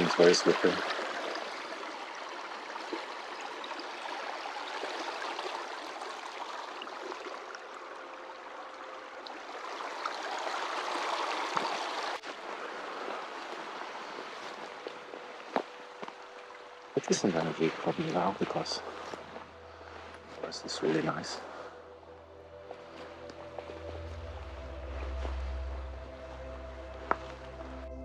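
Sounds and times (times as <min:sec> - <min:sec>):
creek babbling over stones: 0:00.0 - 0:21.5.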